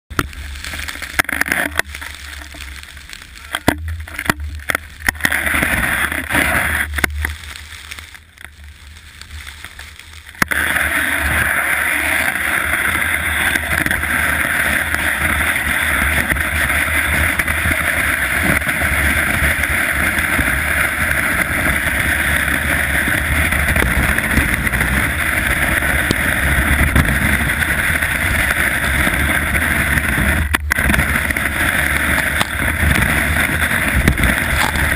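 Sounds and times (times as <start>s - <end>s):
skis sliding over snow: 0.1s - 34.9s
wind on microphone: 10.5s - 34.9s.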